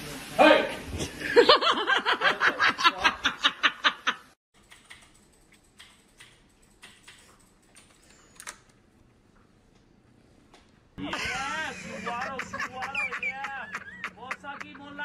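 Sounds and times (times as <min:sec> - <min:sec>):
laughter: 0:01.2 - 0:04.4, 0:11.0 - 0:15.0
keyboard keys clicking: 0:04.6 - 0:08.6.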